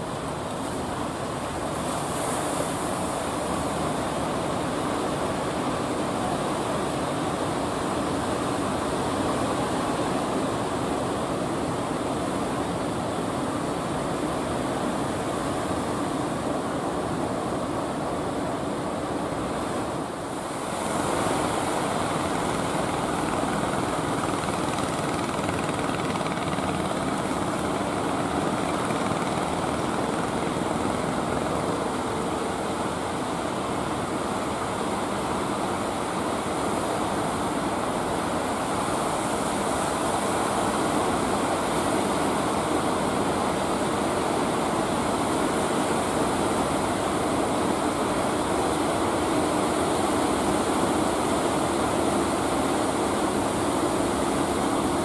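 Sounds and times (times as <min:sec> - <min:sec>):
fishing boat engines droning: 0:20.3 - 0:55.0.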